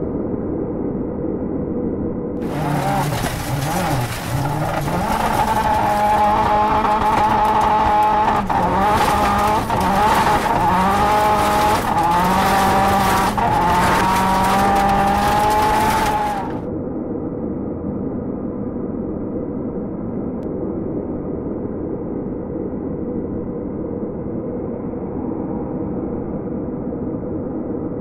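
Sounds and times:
car engine revving high: 2.4s - 16.6s
tyres sliding on loose dirt: 2.4s - 16.6s.

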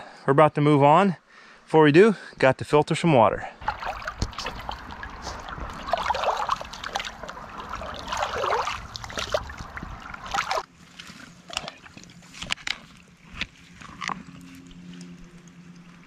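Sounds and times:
stream rushing: 3.6s - 10.7s
water gurgling into bag: 3.6s - 10.7s.

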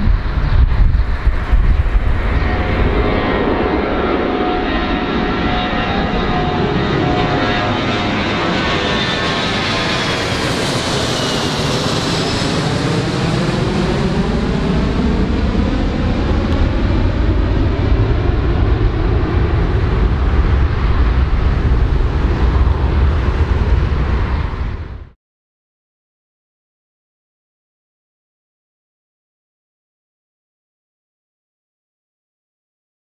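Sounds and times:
aircraft engines passing: 0.0s - 25.2s.

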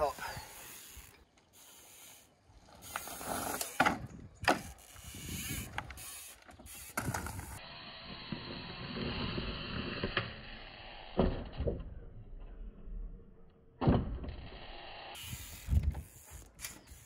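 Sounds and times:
bike rattling and clicking: 0.0s - 7.6s, 15.2s - 17.0s.

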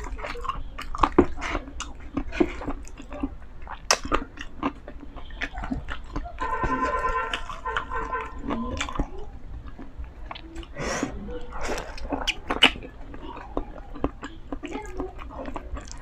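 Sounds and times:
crunchy bites: 0.0s - 10.5s
chewing with wet mouth clicks: 0.0s - 10.8s, 11.4s - 16.0s.

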